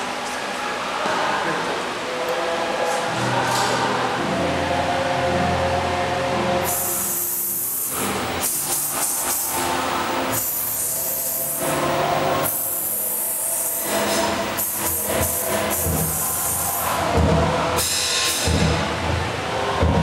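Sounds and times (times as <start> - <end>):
gospel backing track: 1.0 - 20.0
cymbals ringing: 6.6 - 19.0.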